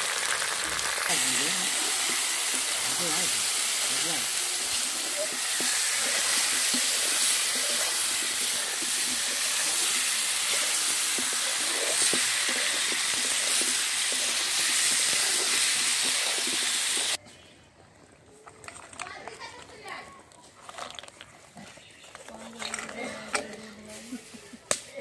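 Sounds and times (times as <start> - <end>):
potatoes sizzling in oil: 0.0 - 17.2
spatula scraping and knocking: 4.6 - 16.7.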